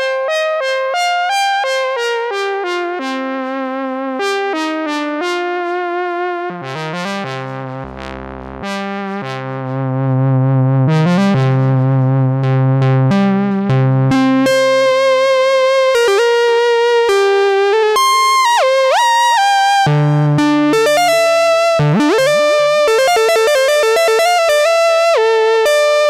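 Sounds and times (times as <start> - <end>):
synthesizer playing single notes: 14.1 - 26.0.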